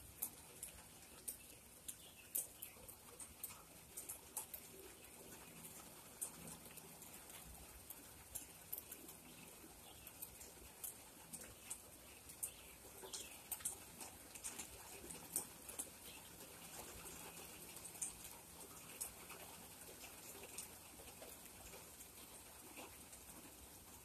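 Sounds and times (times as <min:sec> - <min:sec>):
raindrops tapping: 0:00.0 - 0:24.0.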